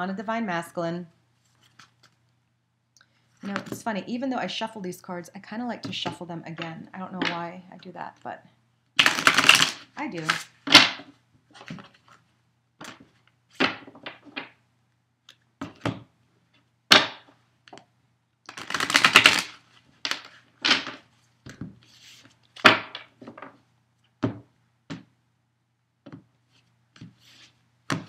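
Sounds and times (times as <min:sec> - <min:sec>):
rapid fluttering cards: 0:09.0 - 0:10.5, 0:18.5 - 0:19.6
cards being shuffled: 0:09.0 - 0:12.2, 0:18.5 - 0:23.5.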